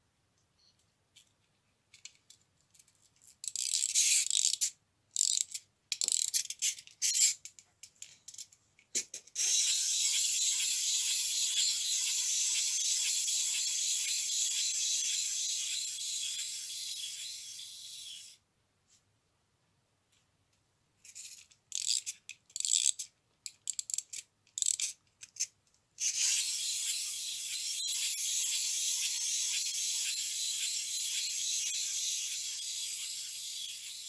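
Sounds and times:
toy key ratcheting clicks: 3.4 - 7.4, 9.4 - 18.4, 21.7 - 34.0
spring motor whirring buzz: 9.4 - 18.4, 26.0 - 34.0.

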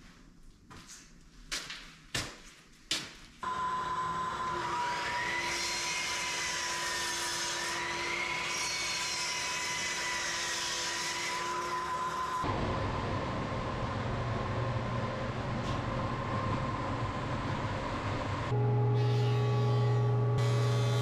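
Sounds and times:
miter saw whining: 3.4 - 12.5, 18.6 - 21.0.

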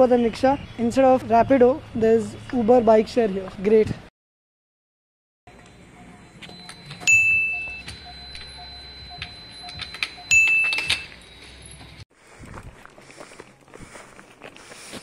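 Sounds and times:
faint steady high tone: 5.5 - 12.0
high ringing chimes: 5.8 - 12.0.

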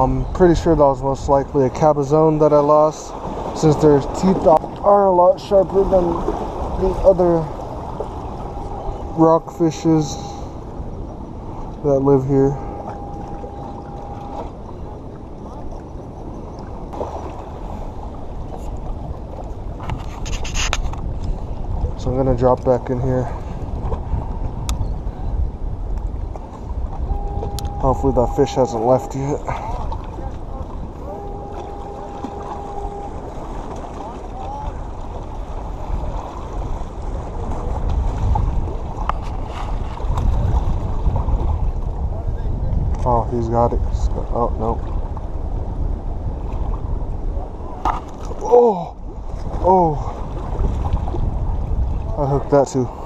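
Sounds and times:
wind noise on microphone: 0.0 - 53.0
small waves washing against rocks: 2.5 - 10.2.

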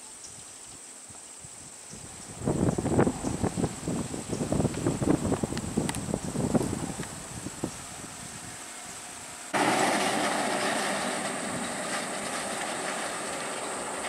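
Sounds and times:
diesel lorry engine rumbling: 6.0 - 14.0.

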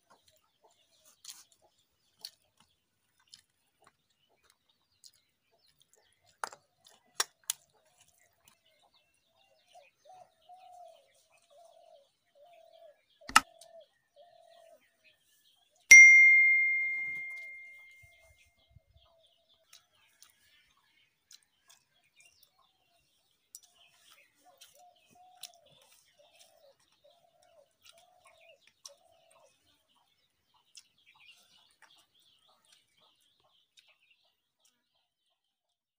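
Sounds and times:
steel dish clink ringing: 15.9 - 18.0.

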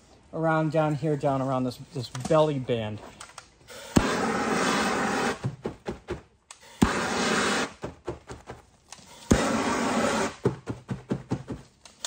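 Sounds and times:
gas torch flame: 3.7 - 5.4, 6.5 - 7.8, 9.0 - 10.4.

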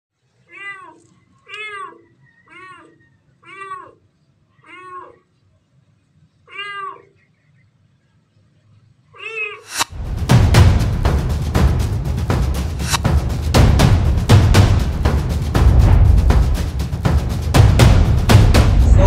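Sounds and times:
kitten meowing: 0.5 - 4.0, 4.6 - 5.2, 6.5 - 7.1, 9.2 - 9.7.

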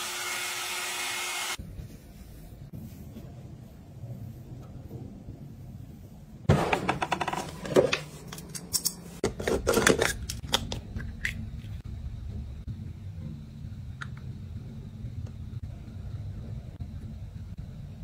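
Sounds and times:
low steady hum: 7.7 - 18.0.

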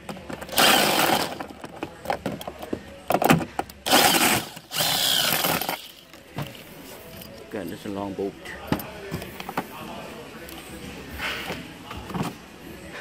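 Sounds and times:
cordless power driver whirring: 0.5 - 1.3, 3.9 - 5.8.

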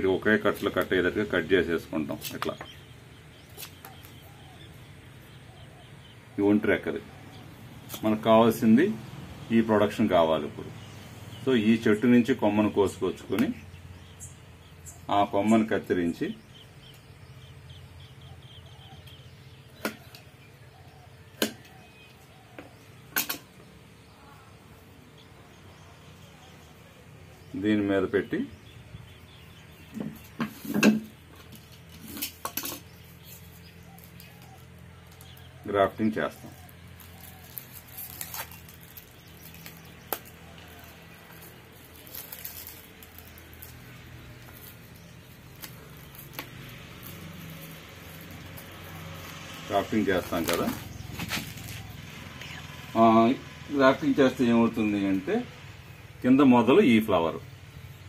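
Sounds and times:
plastic tape rustling and crinkling: 36.4 - 52.2.

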